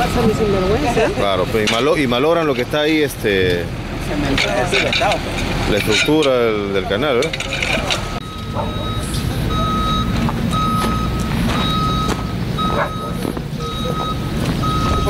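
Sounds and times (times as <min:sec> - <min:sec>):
reversing alarm beeping: 0:00.0 - 0:02.6, 0:07.8 - 0:15.0
low engine rumble: 0:00.0 - 0:15.0.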